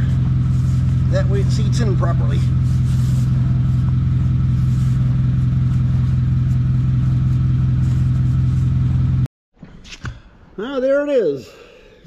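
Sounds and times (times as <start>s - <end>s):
forklift engine idling: 0.0s - 9.3s.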